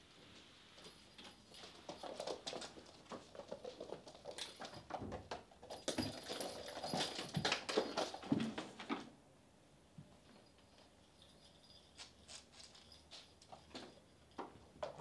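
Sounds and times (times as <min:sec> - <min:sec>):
kittens' paws pattering on hard floor: 0:00.1 - 0:09.2, 0:10.0 - 0:15.0.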